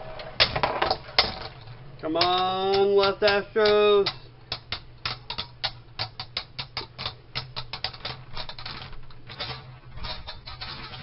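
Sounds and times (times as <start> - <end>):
spinning tops clashing: 0.0 - 11.0.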